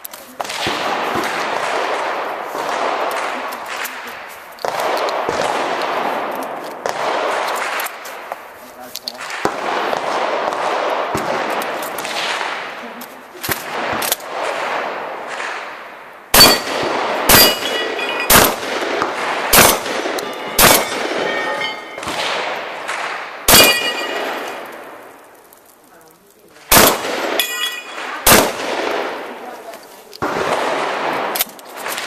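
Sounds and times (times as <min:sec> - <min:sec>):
shotgun shots: 0:00.3 - 0:25.1, 0:26.6 - 0:32.0
ring of struck steel plates: 0:20.1 - 0:22.1
faint cracks: 0:21.2 - 0:30.6.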